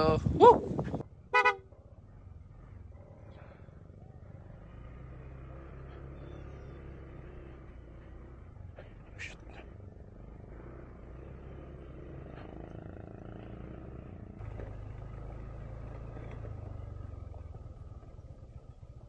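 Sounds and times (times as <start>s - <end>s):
scooter engine running: 10.0s - 19.0s.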